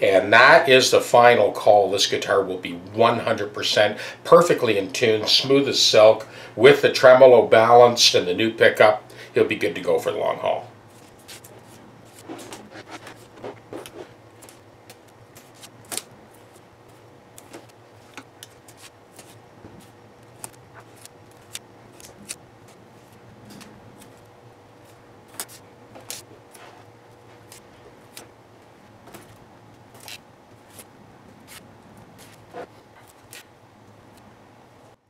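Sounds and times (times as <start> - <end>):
tape rustling: 10.9 - 34.3
masking tape clicks: 20.1 - 26.3.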